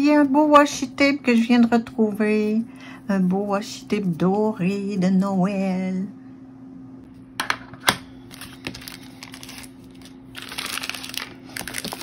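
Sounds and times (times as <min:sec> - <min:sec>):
plastic wrap crinkling: 0:08.3 - 0:12.0.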